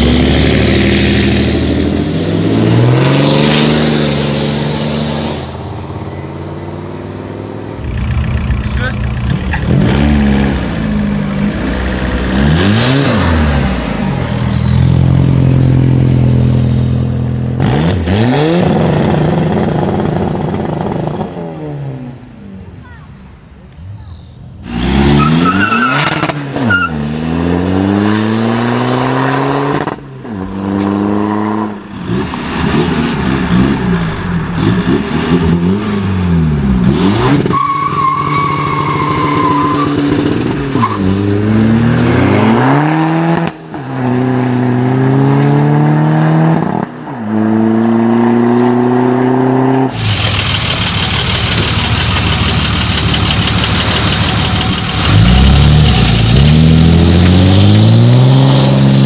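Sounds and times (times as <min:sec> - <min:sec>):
diesel cars accelerating hard: 0:00.0 - 0:22.4, 0:24.6 - 0:59.0
loud diesel engine running: 0:49.9 - 0:57.3.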